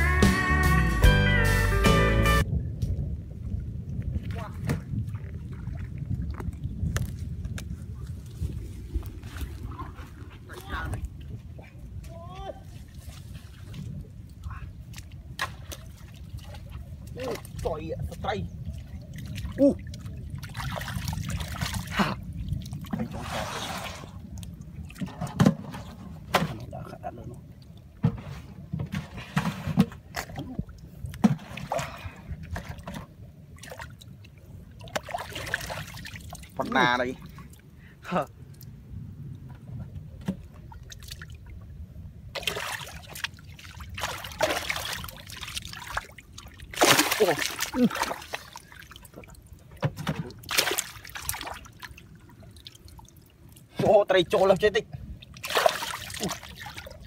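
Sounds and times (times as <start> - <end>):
muddy water sloshing and splashing: 3.4 - 57.0
hands splashing in muddy water: 42.4 - 49.4, 50.1 - 52.7, 55.3 - 57.0.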